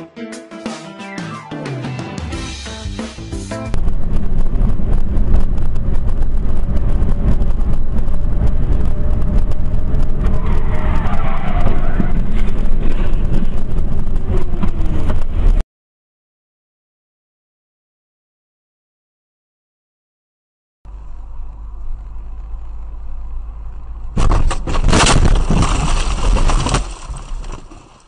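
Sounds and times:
car engine and road rumble: 2.5 - 15.6, 20.9 - 28.0
wavering whine: 3.7 - 15.6.

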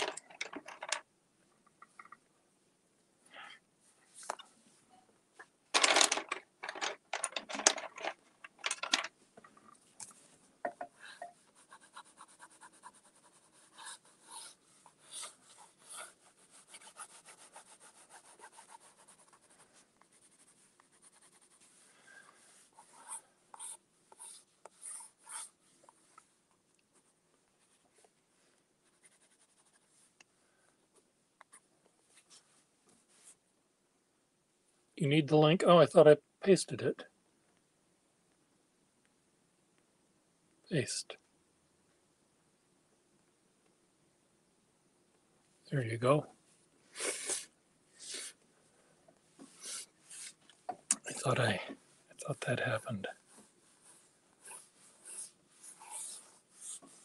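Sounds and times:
pencil scratching on paper: 11.4 - 25.7, 28.8 - 30.1, 53.8 - 57.0.

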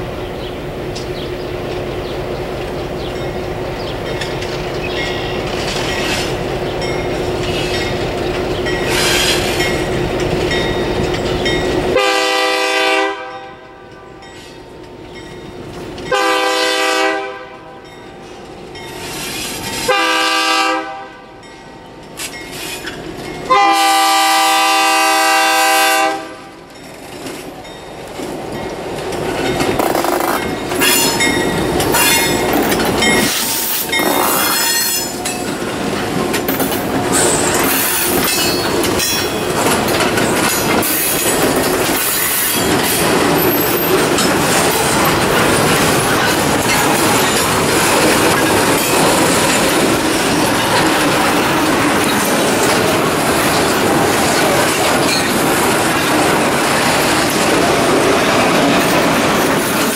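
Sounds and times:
diesel locomotive engine rumbling: 0.0 - 59.9
train wheels on rail: 0.0 - 59.9
train air horn blasts: 12.0 - 14.2, 16.1 - 17.9, 19.8 - 21.4, 23.5 - 26.6.

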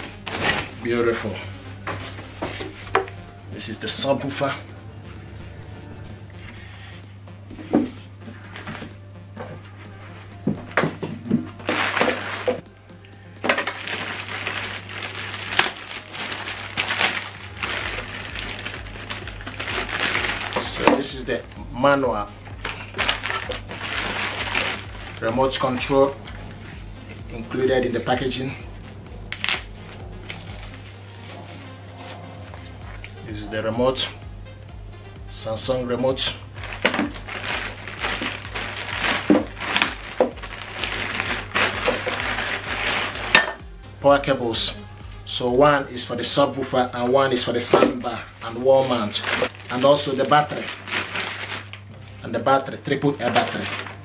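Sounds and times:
paper and plastic rustling: 0.0 - 3.1, 7.6 - 12.6, 13.4 - 21.4, 22.6 - 26.7, 36.0 - 43.6, 47.3 - 54.0
plastic packaging crinkling: 0.0 - 3.1, 10.9 - 12.6, 13.4 - 21.4, 22.4 - 28.2, 36.0 - 43.6, 47.4 - 52.2, 53.1 - 54.0.

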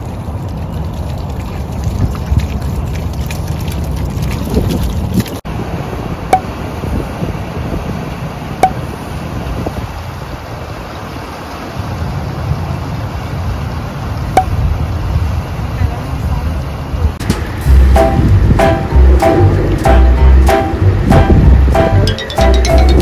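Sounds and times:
dogs wading through water: 0.0 - 5.4
wind buffeting microphone: 0.0 - 11.0, 14.2 - 22.1.

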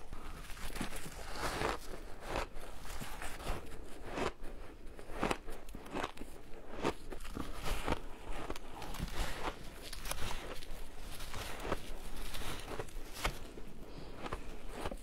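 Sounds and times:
chewing crunchy shaved ice: 0.1 - 15.0.

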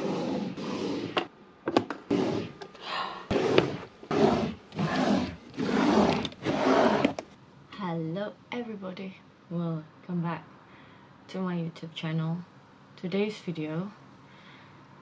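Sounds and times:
drawers sliding: 0.0 - 7.3
drawer clicks and knocks: 1.2 - 2.1.

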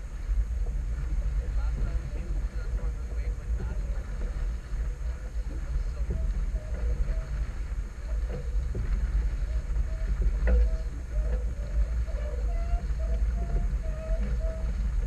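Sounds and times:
faint knocks from boat: 0.0 - 15.0
wind buffeting microphone: 0.0 - 15.0.

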